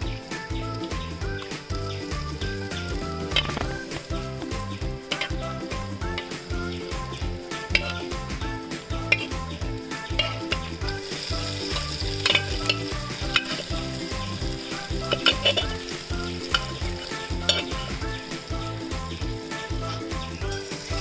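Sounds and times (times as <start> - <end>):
meat sizzling in a hot pan: 0.0 - 21.0
metal spatula scraping a pot: 5.1 - 5.3, 7.6 - 8.1, 10.1 - 18.6.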